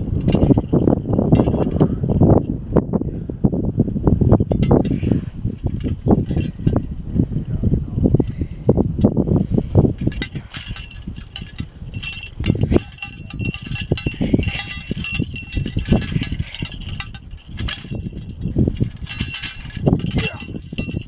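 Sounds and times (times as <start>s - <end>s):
wind buffeting microphone: 0.0s - 21.0s
light metallic chiming: 10.6s - 21.0s.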